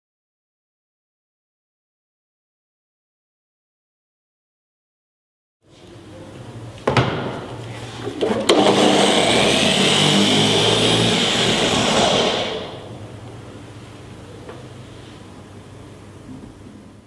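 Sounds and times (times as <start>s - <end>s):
orbital polisher running: 8.6s - 13.0s.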